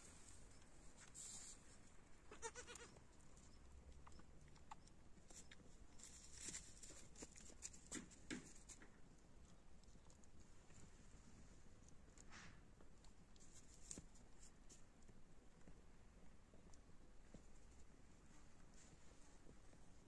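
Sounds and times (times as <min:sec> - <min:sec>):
goat bleating: 0:02.3 - 0:03.0.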